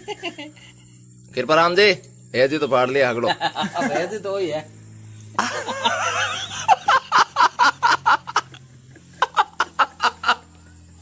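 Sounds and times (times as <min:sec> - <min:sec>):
people laughing: 0:00.0 - 0:00.7, 0:03.2 - 0:04.2, 0:05.4 - 0:10.5.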